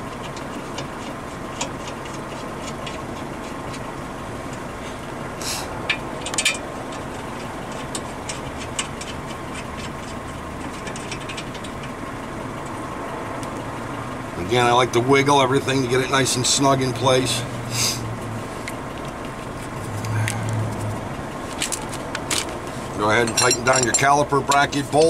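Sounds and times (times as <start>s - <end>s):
steady background hum: 0.0s - 25.0s
metal clicks and clinks of bolts: 23.1s - 24.7s.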